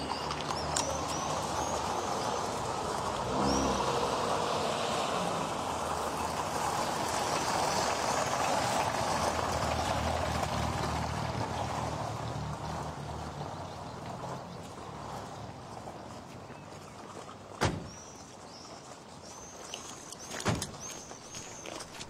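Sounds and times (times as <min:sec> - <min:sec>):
birds chirping: 0:00.0 - 0:04.0, 0:17.7 - 0:22.0
tires rolling over gravel: 0:00.0 - 0:18.7.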